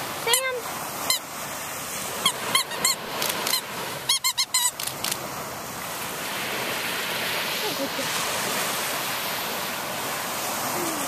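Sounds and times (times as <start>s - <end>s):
surf hiss: 0.0s - 11.0s
rubber squeaky toy squeaking: 2.2s - 5.1s.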